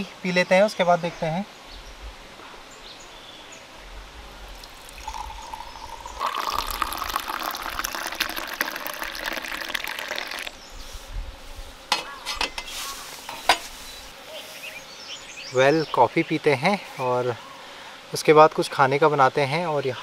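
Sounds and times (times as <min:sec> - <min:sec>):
coffee pouring into a cup: 0:04.5 - 0:10.6.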